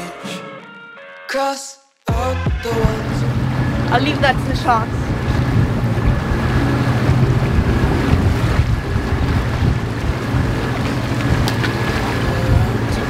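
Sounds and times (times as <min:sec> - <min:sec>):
steady low drone: 0:02.1 - 0:13.0
water rushing past a boat: 0:02.5 - 0:13.0
wind buffeting microphone: 0:02.6 - 0:13.0.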